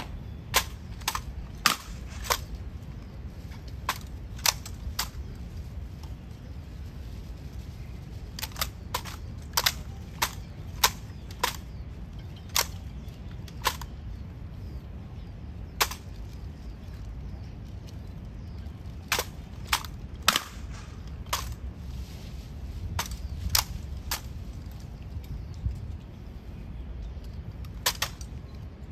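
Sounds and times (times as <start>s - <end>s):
low steady rumble: 0.0s - 28.9s.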